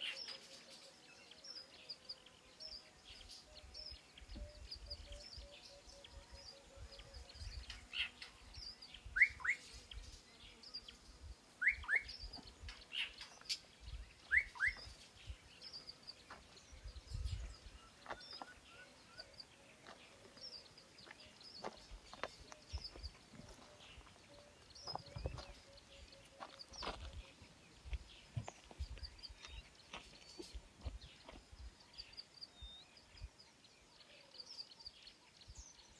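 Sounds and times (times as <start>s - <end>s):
high bird chirps: 13.0s - 15.0s.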